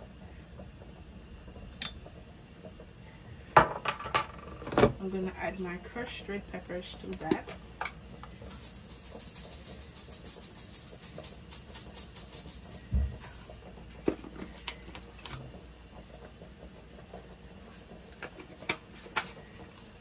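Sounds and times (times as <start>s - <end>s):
butter sizzling in a saucepan: 5.1s - 20.0s.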